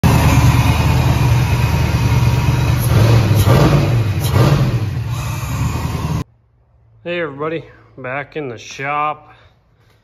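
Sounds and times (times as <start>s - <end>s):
car engine running loudly: 0.0s - 6.2s
engine throttle blips: 0.0s - 6.2s.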